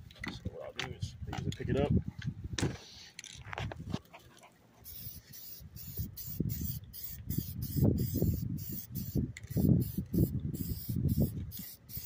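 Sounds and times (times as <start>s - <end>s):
wind rumble on microphone: 0.0s - 2.8s, 5.7s - 11.7s
aerosol can spraying in bursts: 4.8s - 12.0s.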